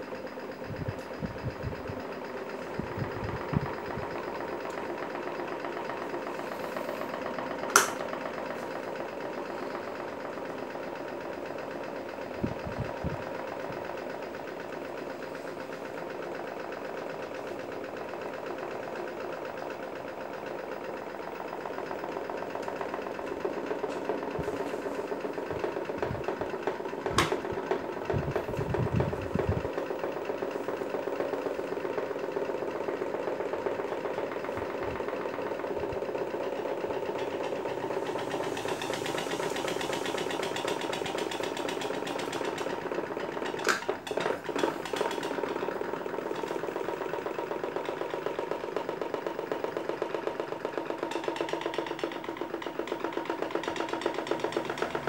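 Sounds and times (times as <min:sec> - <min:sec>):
electric fans whirring: 0:00.0 - 0:55.0.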